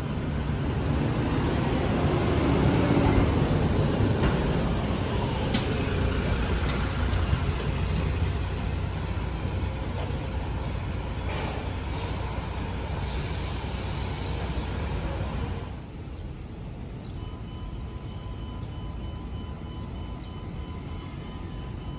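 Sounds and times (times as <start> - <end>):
bus engine droning: 0.0 - 21.9
air brakes hissing: 11.2 - 15.2.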